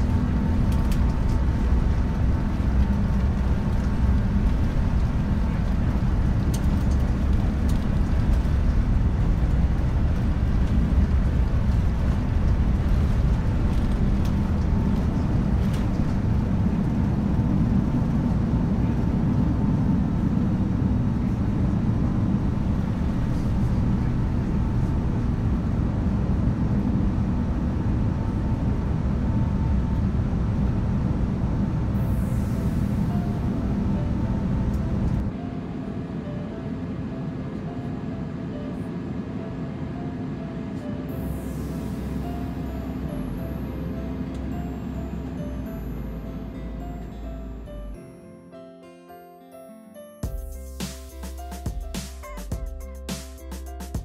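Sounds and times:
jet engines at takeoff thrust: 0.0s - 44.6s
deep runway rumble: 0.0s - 48.0s.

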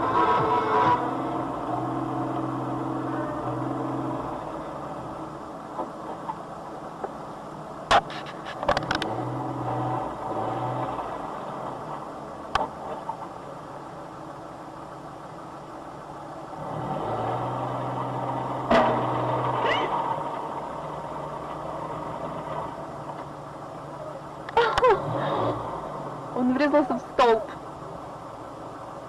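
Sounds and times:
vehicle engine hum: 0.0s - 29.0s.

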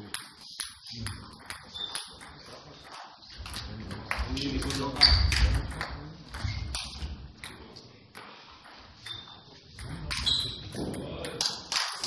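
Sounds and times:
table tennis ball clicking: 0.0s - 8.3s.

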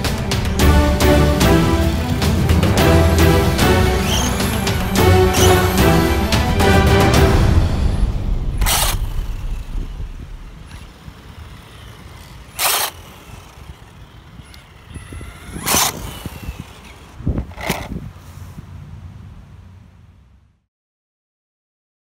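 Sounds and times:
electric motor whine: 0.0s - 6.8s, 8.3s - 18.0s
background music: 0.0s - 10.8s
loud rushes of noise: 0.0s - 18.5s.

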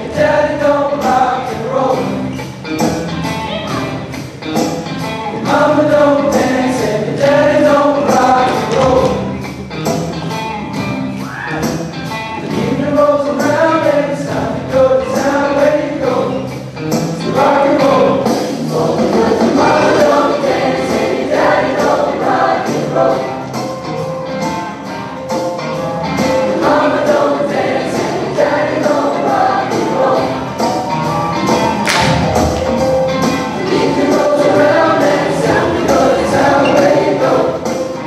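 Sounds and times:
choir singing: 0.0s - 2.5s, 5.3s - 9.4s, 12.4s - 16.5s, 17.2s - 23.7s, 26.1s - 38.0s
accompaniment with steady beat: 0.0s - 38.0s.

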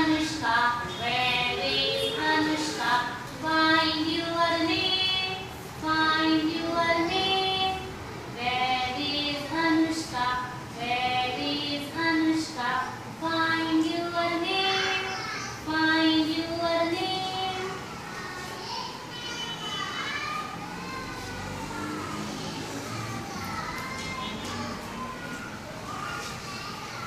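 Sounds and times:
woman singing: 0.0s - 15.0s, 15.7s - 17.7s
children singing: 0.0s - 27.0s.

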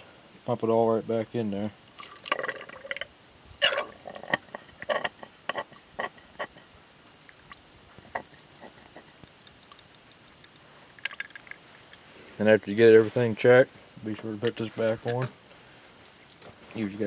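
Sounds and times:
liquid squirting and gurgling: 1.9s - 6.6s.

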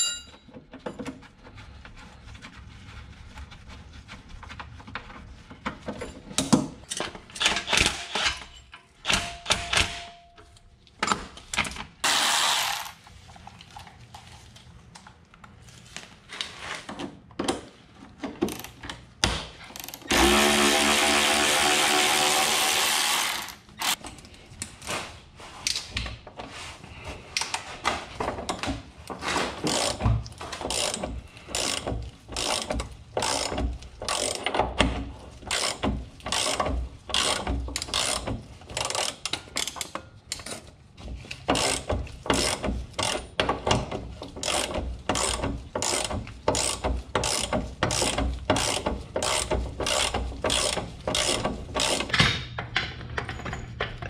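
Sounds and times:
power ratchet running: 12.0s - 13.0s, 20.1s - 24.0s, 44.4s - 52.1s
hand ratchet clicking: 29.7s - 30.0s, 30.7s - 34.6s, 35.5s - 40.6s, 41.5s - 43.2s, 44.3s - 52.2s.

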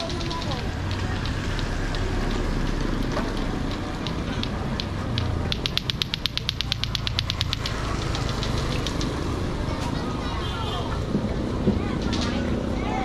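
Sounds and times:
rapid mechanical ratchet clicking: 0.0s - 9.4s
low traffic rumble: 0.0s - 13.0s.

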